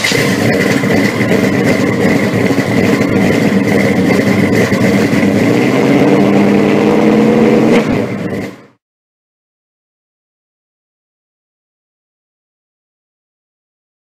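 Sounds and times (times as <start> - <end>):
vehicle engine running: 0.0 - 8.8.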